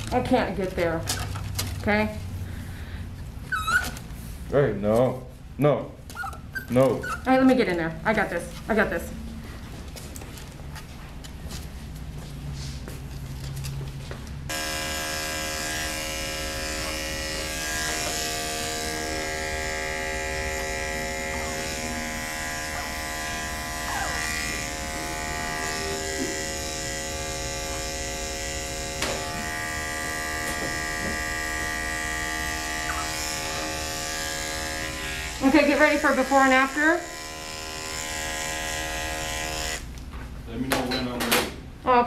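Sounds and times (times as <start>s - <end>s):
electric clipper buzzing: 14.5s - 39.9s.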